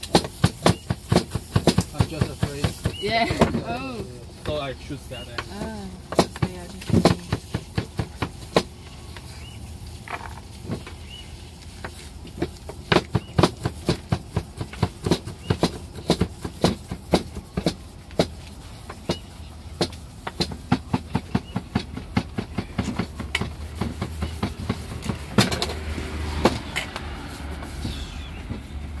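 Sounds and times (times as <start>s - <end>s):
sharp knocks and clicks: 11.8s - 27.1s.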